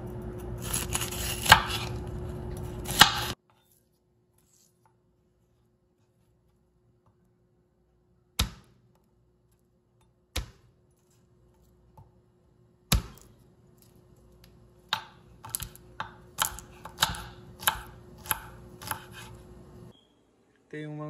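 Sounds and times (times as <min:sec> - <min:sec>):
knife smacking garlic on board: 0:14.9 - 0:19.3.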